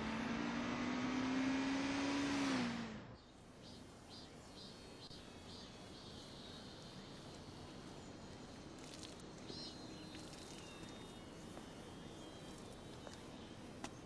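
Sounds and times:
insect buzz and chirps: 0:03.6 - 0:14.0.

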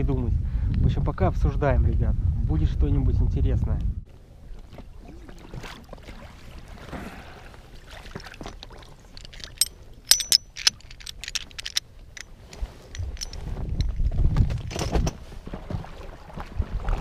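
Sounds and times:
faint water lapping: 0:04.1 - 0:10.0, 0:15.2 - 0:17.0
metal multi-tool clicks: 0:09.2 - 0:12.3.

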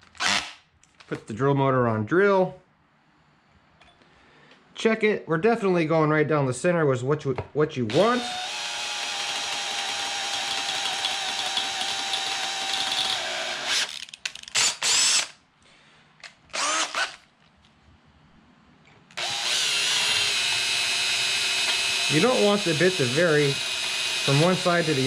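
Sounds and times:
cordless drill drilling into metal: 0:07.9 - 0:14.0, 0:14.6 - 0:15.4, 0:16.5 - 0:17.2, 0:19.2 - 0:25.0.

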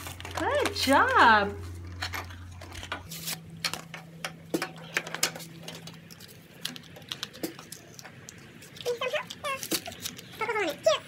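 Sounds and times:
faint steady hum: 0:00.0 - 0:11.0
plastic blister pack crackling: 0:04.6 - 0:11.0.

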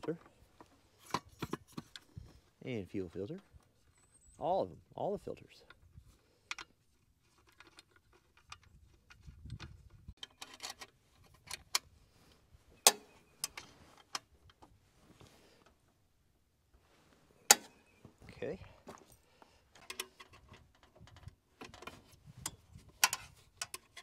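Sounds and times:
tools clicking and clinking: 0:06.4 - 0:11.9, 0:12.8 - 0:14.6, 0:17.5 - 0:17.8, 0:19.7 - 0:24.0.

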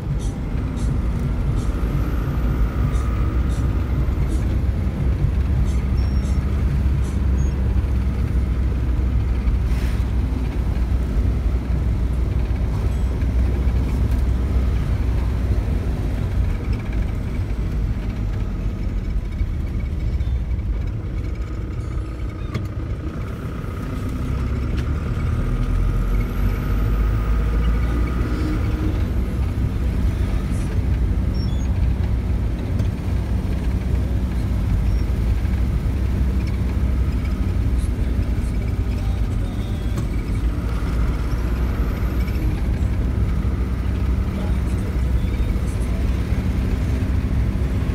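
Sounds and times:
car cabin engine and road rumble: 0:00.0 - 0:47.9.

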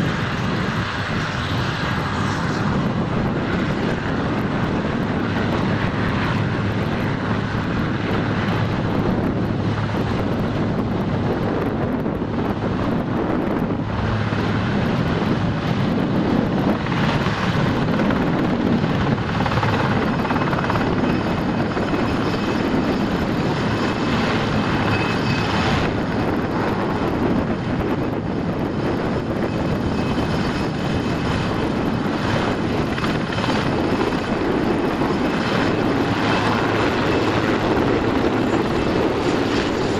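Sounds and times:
helicopter engines and rotors: 0:00.0 - 0:39.9
high turbine whine: 0:00.0 - 0:39.9.

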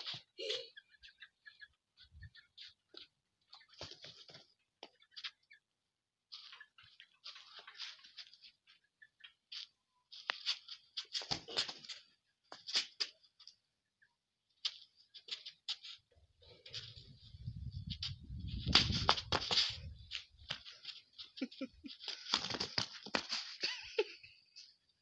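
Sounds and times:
rooster scuffling on dirt: 0:16.6 - 0:23.7
flip-flop footsteps on dirt: 0:17.8 - 0:23.6.

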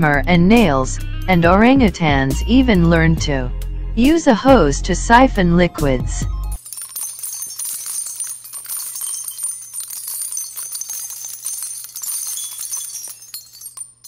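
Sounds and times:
small bells jingling: 0:06.6 - 0:14.0.

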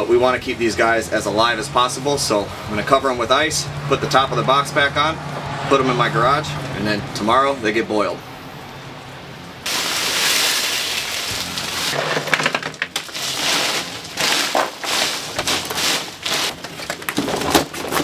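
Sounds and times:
ice crunching: 0:09.7 - 0:18.0
ice cubes poured and rattling: 0:09.7 - 0:18.0
plastic bagging crinkling: 0:09.7 - 0:18.0.

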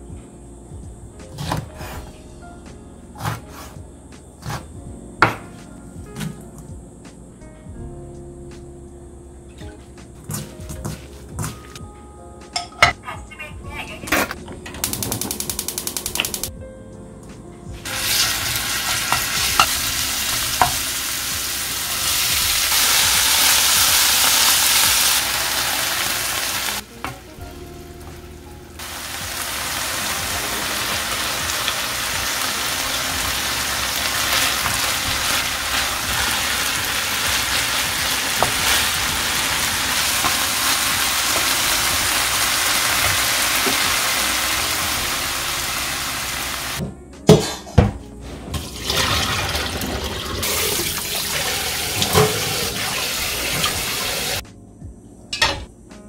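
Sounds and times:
food sizzling in oil: 0:17.8 - 0:26.9, 0:28.2 - 0:46.8, 0:50.2 - 0:54.4.

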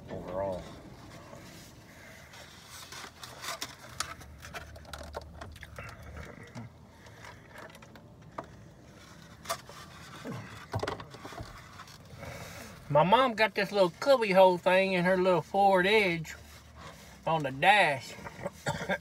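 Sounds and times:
chewing taco: 0:01.9 - 0:12.8.

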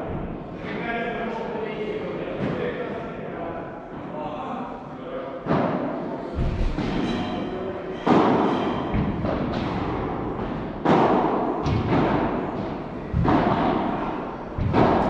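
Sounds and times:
paddle rackets hitting ball: 0:08.0 - 0:15.0.

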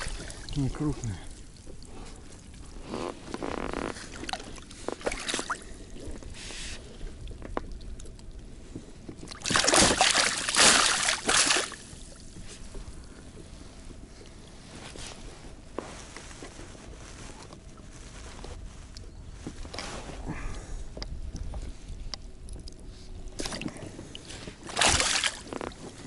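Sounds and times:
fish splashing in water: 0:09.3 - 0:12.0, 0:24.6 - 0:25.5.

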